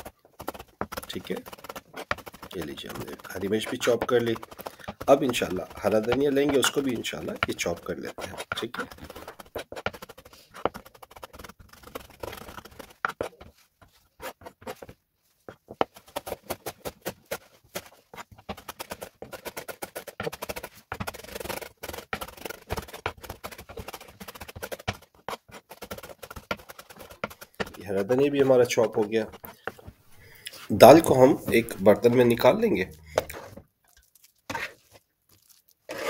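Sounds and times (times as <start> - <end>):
knife chopping on cutting board: 0.0 - 13.3.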